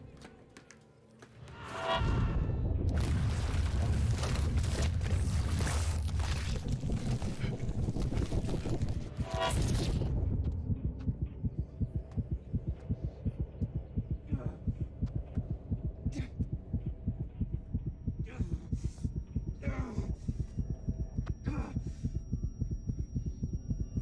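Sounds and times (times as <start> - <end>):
fast pounding heartbeat: 10.1 - 24.0.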